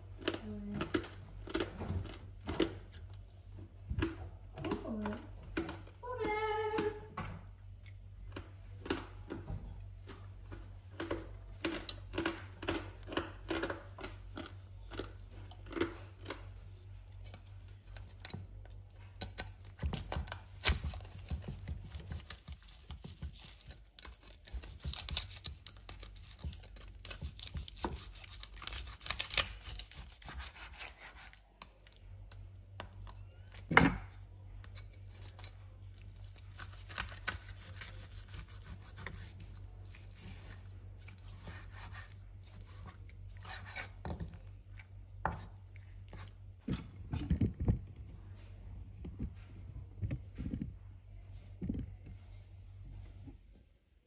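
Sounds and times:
knife crunching pork crackling: 19.3s - 32.0s, 34.6s - 44.0s.

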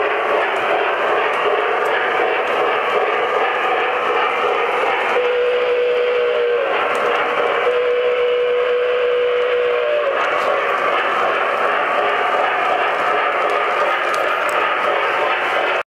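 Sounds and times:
model freight cars rolling on track: 0.0s - 15.8s
model steam whistle blasts: 5.1s - 10.2s.

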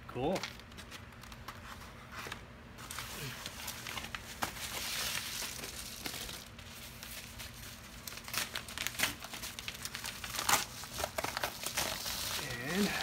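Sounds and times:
packaging crinkling: 2.8s - 13.0s
packaging tearing: 2.9s - 13.0s.

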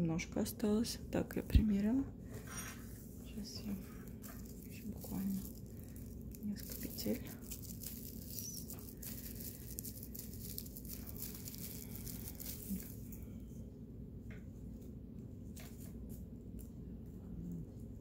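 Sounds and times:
steady low hum: 0.0s - 18.0s
plastic crinkling and rustling: 2.7s - 13.2s.

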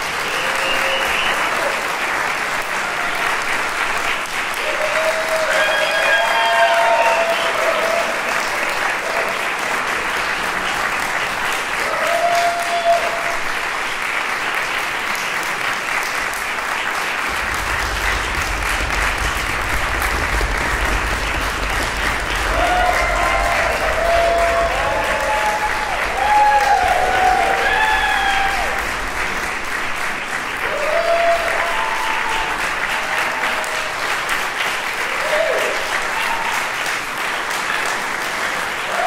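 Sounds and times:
cheering shout: 0.0s - 2.0s, 2.6s - 3.9s, 4.5s - 9.6s, 11.6s - 13.6s, 17.3s - 29.5s, 30.5s - 34.4s, 35.0s - 36.9s, 38.8s - 39.0s
audience applauding: 0.0s - 39.0s.

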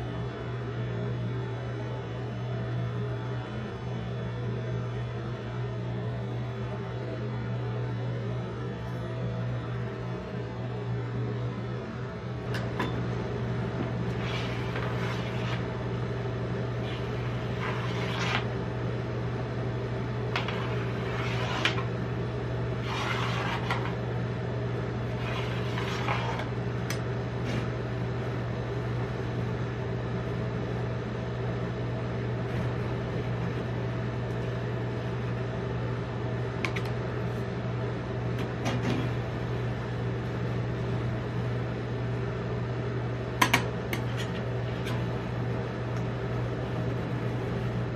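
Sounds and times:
refrigeration unit hum: 0.0s - 47.9s
spatula scraping ice cream: 14.0s - 15.9s, 16.7s - 18.6s, 20.4s - 21.9s, 22.7s - 24.0s, 25.0s - 26.5s.

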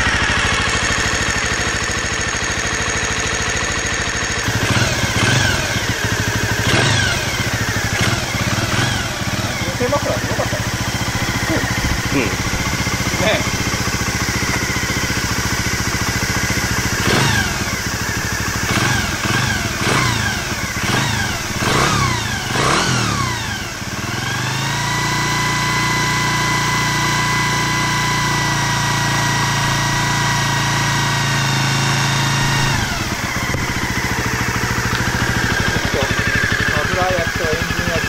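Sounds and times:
small motorcycle engine revving: 0.0s - 38.0s.

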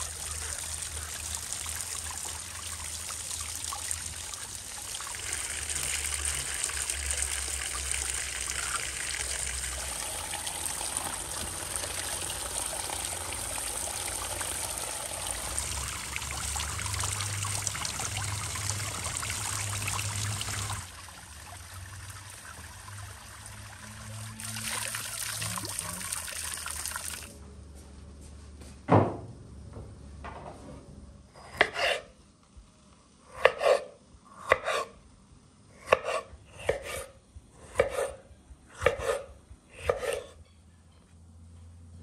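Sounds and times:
flowing water: 0.0s - 27.4s
knife chopping on a board: 37.7s - 38.2s, 38.8s - 39.2s, 39.8s - 40.3s.

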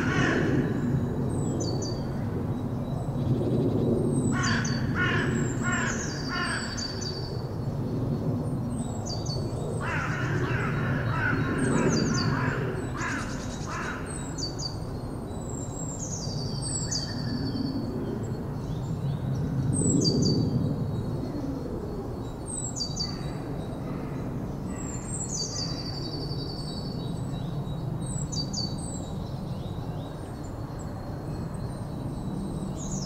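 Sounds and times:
harsh bird calls: 9.8s - 14.7s.

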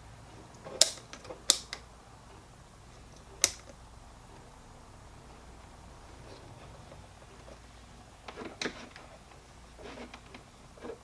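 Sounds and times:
multimeter control clicks: 0.8s - 1.9s, 3.2s - 3.8s.

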